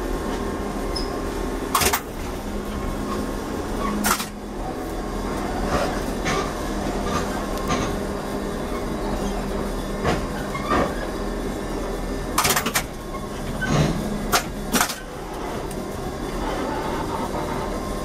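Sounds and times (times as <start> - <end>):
trolleybus low hum: 0.0 - 18.0.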